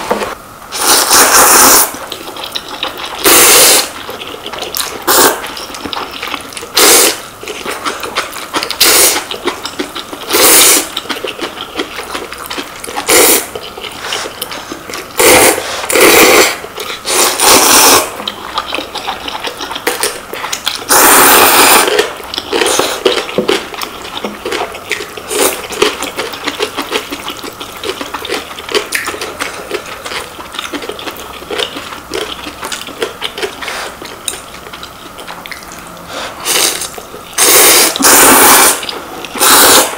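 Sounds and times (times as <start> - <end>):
chewing and eating noises: 0.0 - 39.9
people slurping noodles: 0.7 - 5.6, 6.7 - 7.2, 8.8 - 9.4, 10.2 - 11.0, 13.0 - 20.2, 20.8 - 23.2, 36.0 - 39.9.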